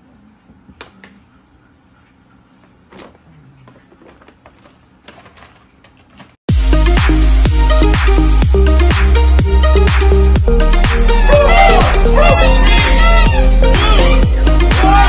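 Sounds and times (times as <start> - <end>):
packaging rustling and clicking: 3.9 - 6.4
electronic dance music: 9.0 - 15.0.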